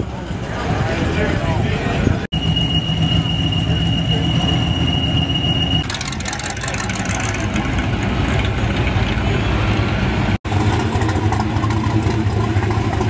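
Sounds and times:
pickup truck engines rumbling: 0.0 - 13.0
engine idling: 5.8 - 9.6, 10.2 - 13.0.

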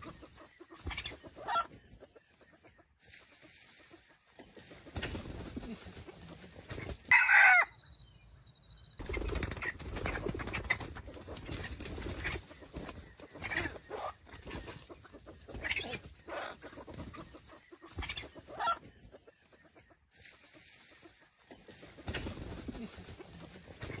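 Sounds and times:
rooster clucking: 0.0 - 2.2, 9.6 - 19.3
rooster call: 7.1 - 7.7.

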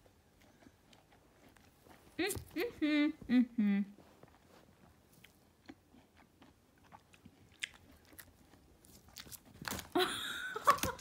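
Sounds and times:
rabbit chewing crunchily: 0.0 - 2.7, 4.1 - 10.0.

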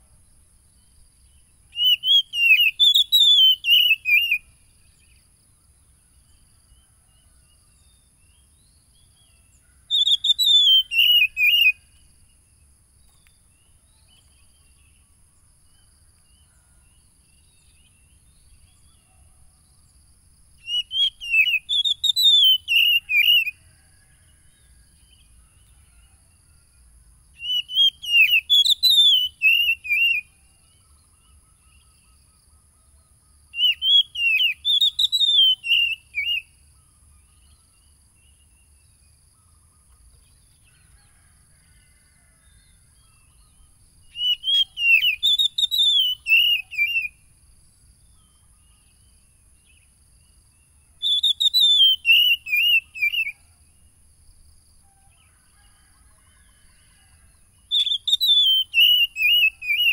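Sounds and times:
bird singing whistled notes: 0.7 - 5.3, 6.1 - 12.4, 20.6 - 23.7, 27.4 - 40.4, 42.6 - 47.3, 48.0 - 53.5, 57.6 - 59.9.

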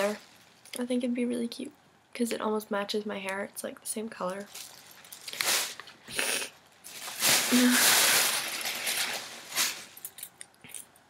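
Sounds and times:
rustling of purchases: 4.2 - 11.0.

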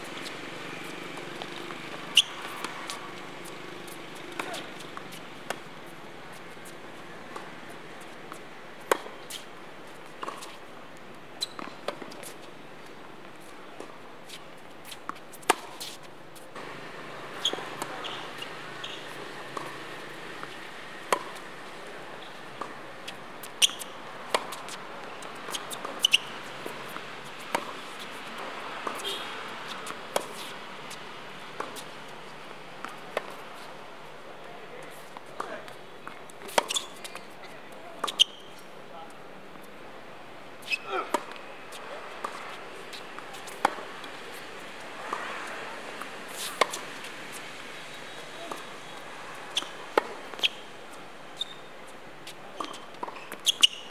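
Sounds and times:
tennis ball hit by racket: 0.2 - 3.6, 4.2 - 5.7, 8.8 - 9.5, 15.1 - 16.0, 16.6 - 21.5, 22.2 - 32.0, 36.4 - 37.2, 40.6 - 44.4, 45.0 - 47.1, 49.5 - 50.6.

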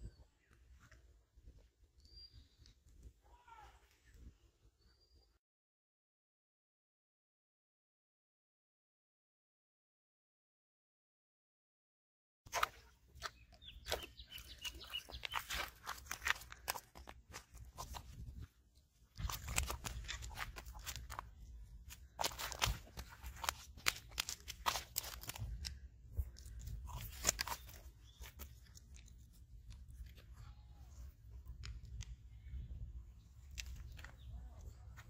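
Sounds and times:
fish flopping on stony ground: 12.5 - 30.2.

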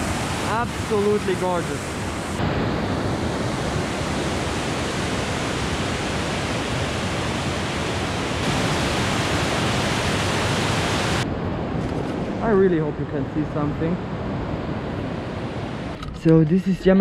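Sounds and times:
waterfall and stream rushing: 0.0 - 11.7.

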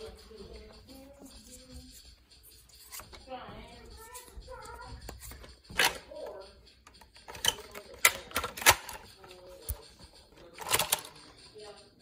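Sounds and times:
plastic toy blaster clicks: 5.3 - 6.4, 7.0 - 9.8, 10.5 - 11.3.

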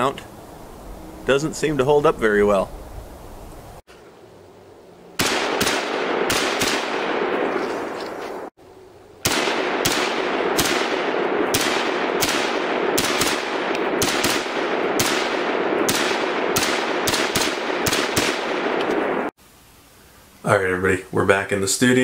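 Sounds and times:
rifle gunshots with echo: 5.2 - 7.6, 9.2 - 19.3.

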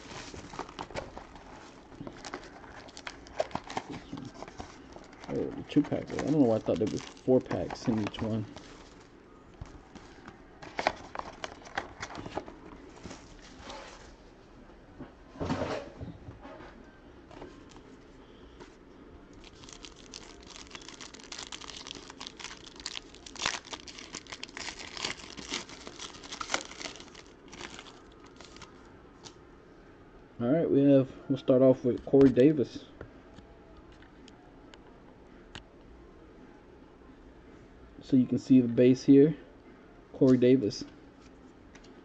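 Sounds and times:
card pack wrappers crinkling: 0.0 - 9.1, 9.9 - 12.5, 19.4 - 28.8.

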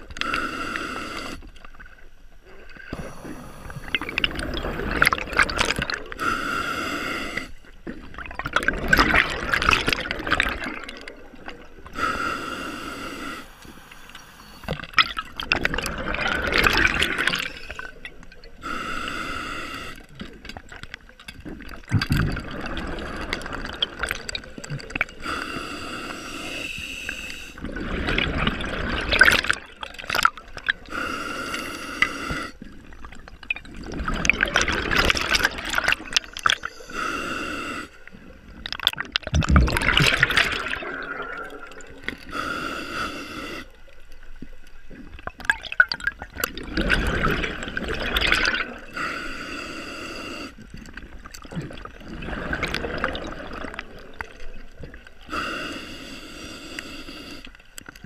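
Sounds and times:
exhaled bubbles gurgling: 0.0 - 12.4, 13.0 - 19.2, 19.8 - 58.0
diver breathing through regulator: 0.2 - 1.5, 2.9 - 7.6, 11.8 - 14.8, 18.6 - 20.2, 22.4 - 27.8, 30.8 - 32.7, 34.9 - 38.2, 39.9 - 43.9, 48.4 - 50.8, 55.3 - 57.6.

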